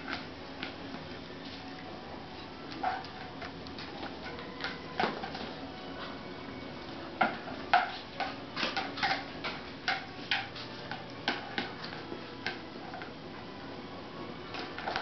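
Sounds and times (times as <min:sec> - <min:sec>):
dog claws clicking on tiled floor: 0:07.2 - 0:12.6.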